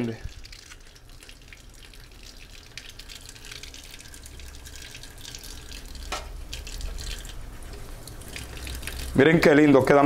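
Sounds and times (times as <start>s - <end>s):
tap water splashing into sink: 4.5s - 9.2s.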